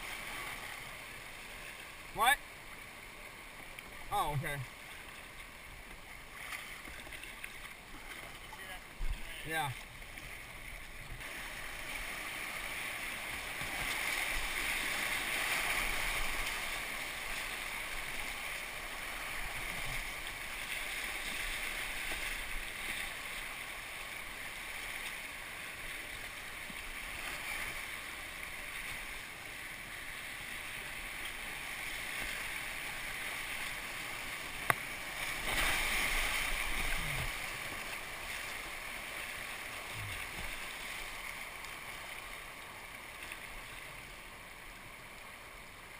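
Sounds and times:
river rapids rushing: 11.2s - 29.2s, 30.0s - 42.3s.

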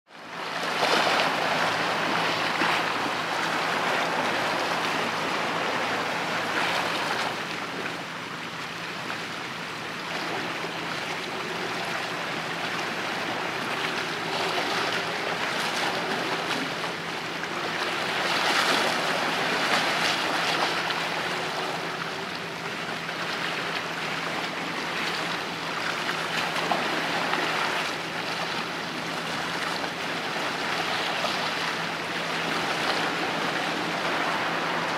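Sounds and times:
water lapping against shore: 0.1s - 34.9s.

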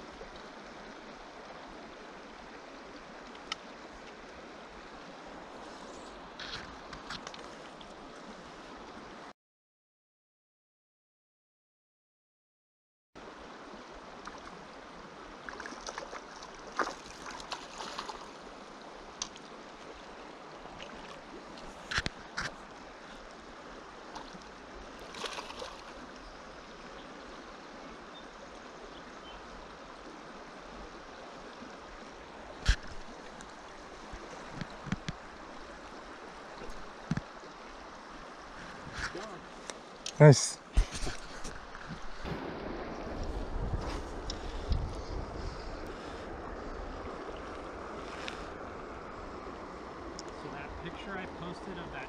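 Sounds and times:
river flowing: 0.0s - 9.3s, 13.2s - 52.0s
splashes and knocks in water: 15.5s - 18.4s, 25.0s - 26.0s.

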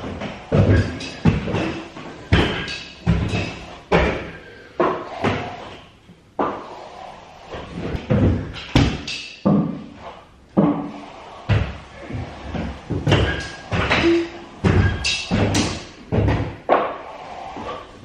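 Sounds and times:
sharp knocks and thuds: 7.9s - 9.9s.

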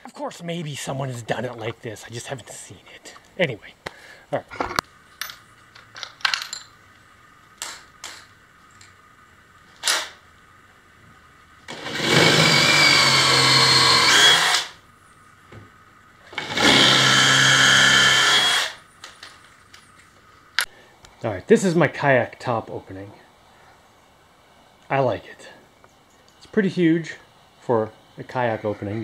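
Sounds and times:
cordless drill into wood: 11.7s - 14.8s, 16.4s - 18.8s.

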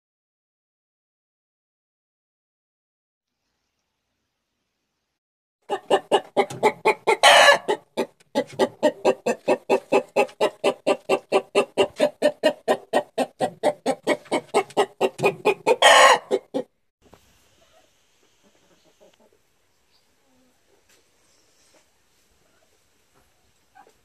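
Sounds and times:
hen clucking rapidly: 5.7s - 16.7s.

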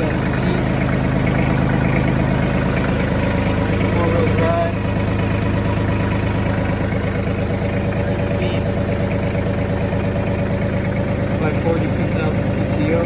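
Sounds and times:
tractor diesel engine idling: 0.0s - 13.0s.

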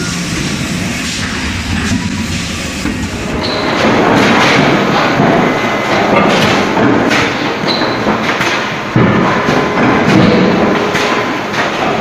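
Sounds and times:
forging machinery clatter and rumble: 0.0s - 12.0s
sharp knocks: 3.6s - 12.0s.

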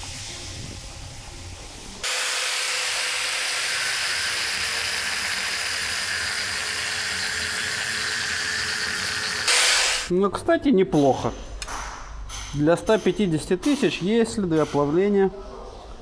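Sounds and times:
angle grinder cutting metal: 2.0s - 10.1s.

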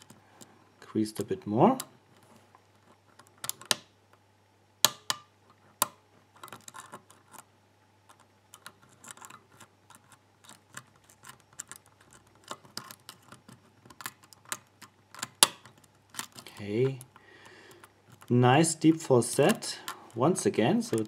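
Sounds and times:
lock pick clicking in lock: 3.1s - 3.9s, 8.1s - 17.1s.

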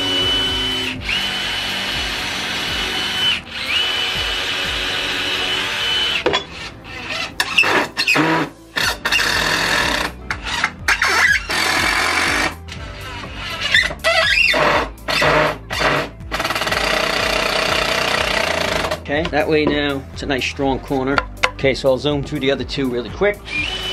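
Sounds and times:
power drill boring into wood: 0.0s - 19.0s, 23.5s - 23.9s.

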